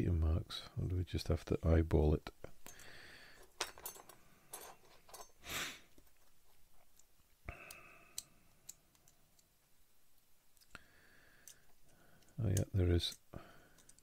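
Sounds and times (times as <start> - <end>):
plastic parts clicking and tapping: 11.4 - 14.0.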